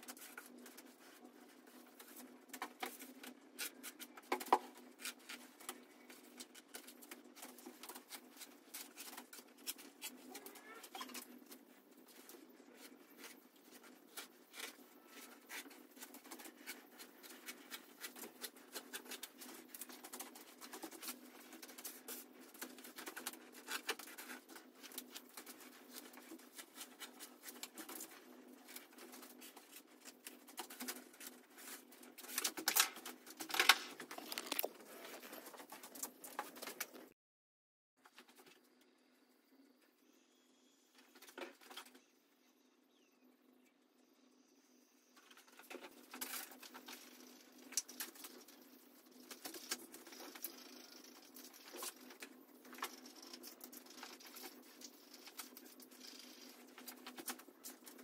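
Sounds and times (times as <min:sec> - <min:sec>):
patter of small clicks and rustles: 0:00.0 - 0:37.2, 0:40.9 - 0:42.1, 0:45.1 - 0:58.0.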